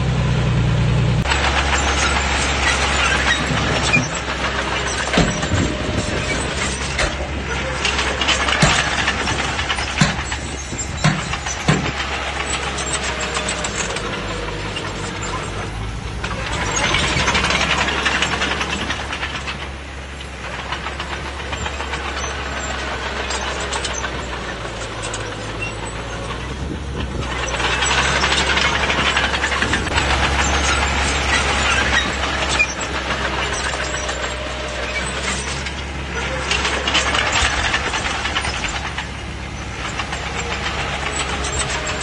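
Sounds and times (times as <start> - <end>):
bulldozer diesel engine running: 0.0 - 42.0
sharp metallic knocks: 1.2 - 7.3, 7.9 - 19.8.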